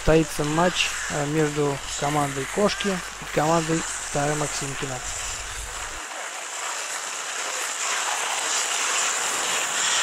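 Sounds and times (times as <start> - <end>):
skate blades scraping on ice: 5.8 - 10.0.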